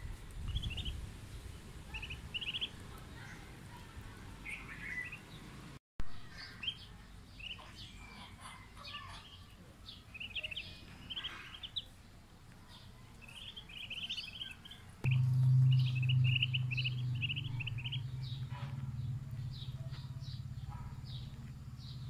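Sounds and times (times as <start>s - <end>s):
ducklings peeping: 1.9s - 3.1s, 6.3s - 11.9s, 13.2s - 21.3s.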